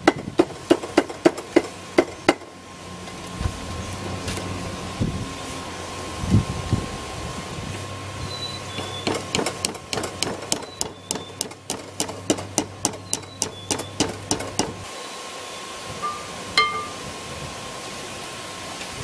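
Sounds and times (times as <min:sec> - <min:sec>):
hammer ringing on anvil: 0:16.0 - 0:17.0.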